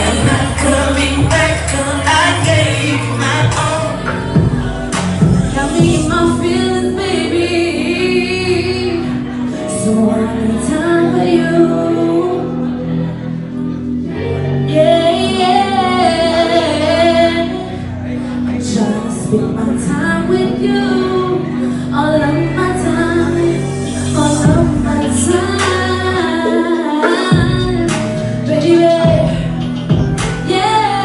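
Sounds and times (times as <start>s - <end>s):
backing music: 0.0s - 31.0s
woman singing into microphone: 0.0s - 31.0s.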